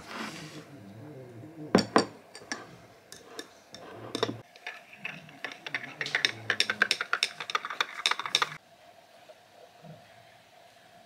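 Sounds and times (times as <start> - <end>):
spoon clinking in glass: 4.2 - 8.6.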